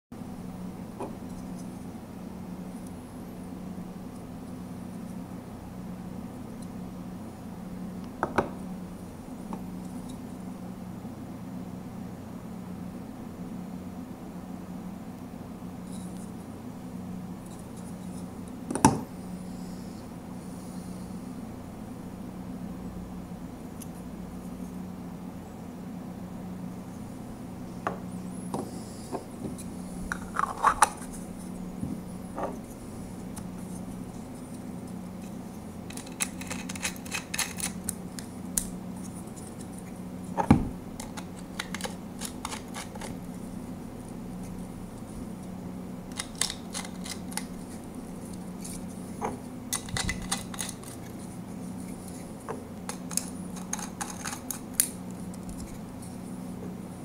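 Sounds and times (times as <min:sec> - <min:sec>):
steady low hum: 0:00.1 - 0:57.0
plastic parts clicking and knocking: 0:35.9 - 0:37.8, 0:49.7 - 0:51.0, 0:52.9 - 0:54.6.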